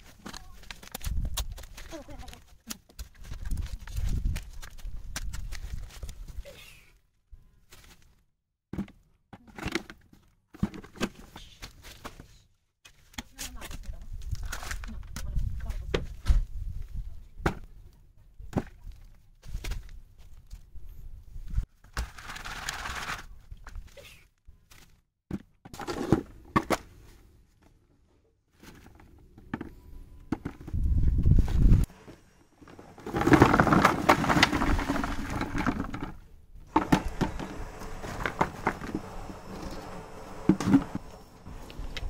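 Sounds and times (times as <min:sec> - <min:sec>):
knocks and rustling: 0:28.6 - 0:42.0
soil pouring: 0:32.6 - 0:36.1, 0:36.7 - 0:42.0.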